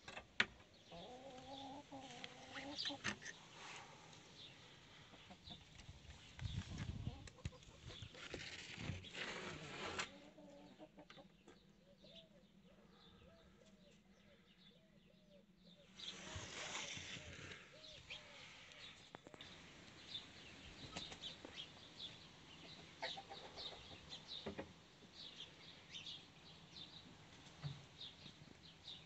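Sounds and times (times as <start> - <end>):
hens clucking: 0.9 - 3.5, 5.0 - 5.9, 6.9 - 8.2, 10.0 - 11.6, 22.6 - 24.6
rustling and handling noise: 16.0 - 20.0.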